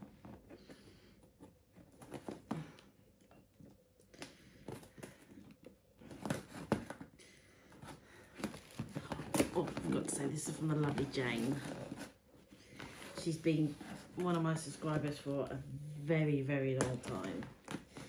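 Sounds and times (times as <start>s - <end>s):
cardboard parcel being opened: 4.0s - 16.0s.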